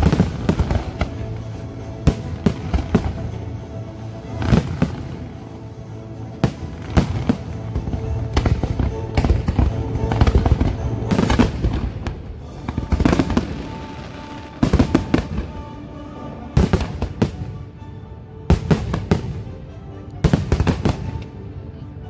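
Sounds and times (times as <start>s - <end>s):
fireworks bursting: 0.0s - 16.0s
music playing: 0.0s - 22.0s.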